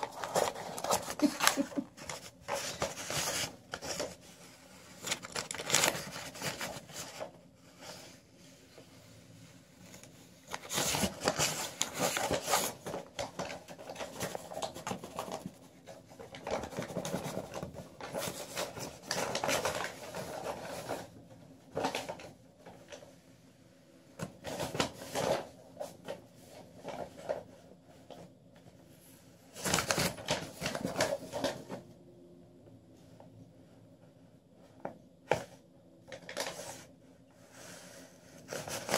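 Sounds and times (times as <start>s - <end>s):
paper rustling and scraping on carpet: 0.0s - 23.0s, 35.3s - 38.9s.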